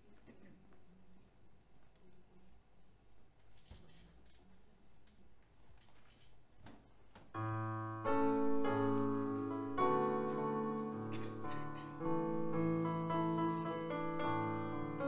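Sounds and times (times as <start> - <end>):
piano chords on keyboard: 7.4 - 15.0.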